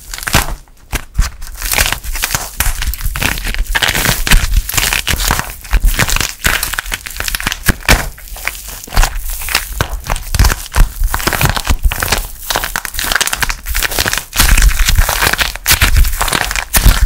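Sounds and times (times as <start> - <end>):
plaster shell cracking: 0.0 - 17.0
soft clay squishing: 0.0 - 17.0.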